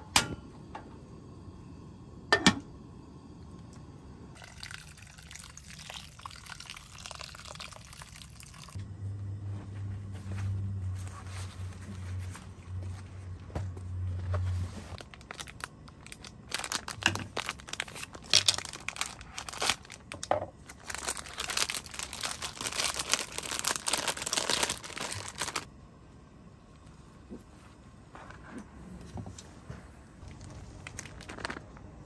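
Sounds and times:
low steady hum: 0.0s - 32.0s
plastic packaging tearing and crinkling: 14.3s - 25.7s, 30.2s - 31.8s.

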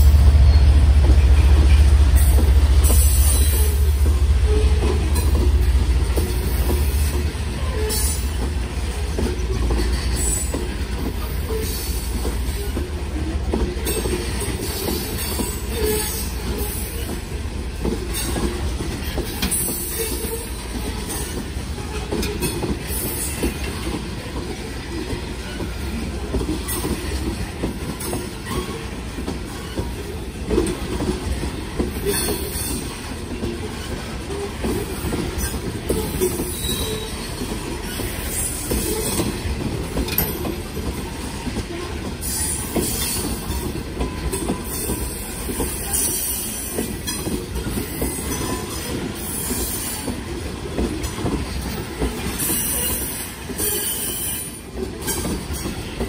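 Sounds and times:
freight train wheels clattering on rail: 0.0s - 56.0s.

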